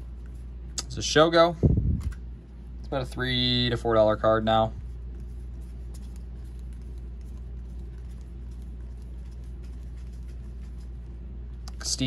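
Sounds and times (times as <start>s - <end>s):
low hum: 0.0s - 12.0s
trading cards rustling: 4.9s - 11.6s.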